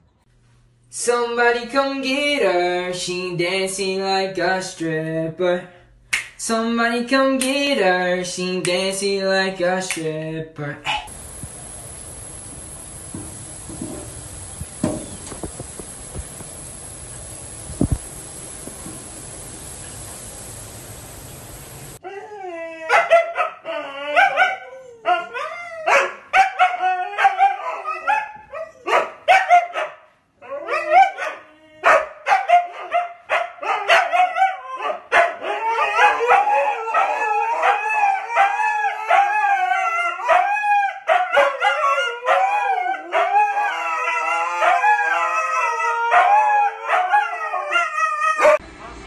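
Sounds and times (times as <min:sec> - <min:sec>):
dogs howling: 0:22.0 - 0:29.0, 0:30.4 - 0:48.6.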